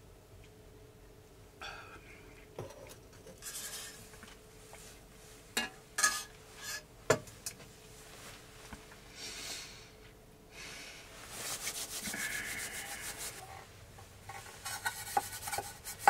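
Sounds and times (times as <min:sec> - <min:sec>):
metal spoon scraping in metal pot: 0:03.4 - 0:04.0, 0:06.0 - 0:06.8, 0:14.6 - 0:16.0.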